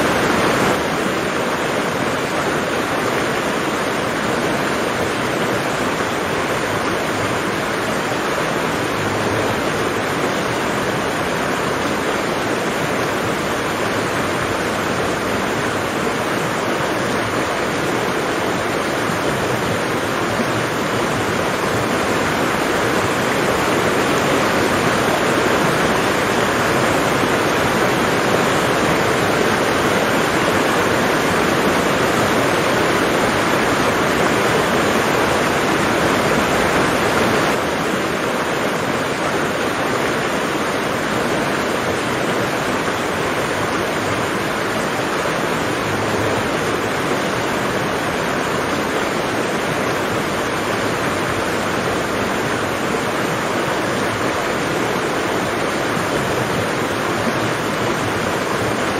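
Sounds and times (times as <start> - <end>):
heavy rain hissing: 0.0 - 58.9.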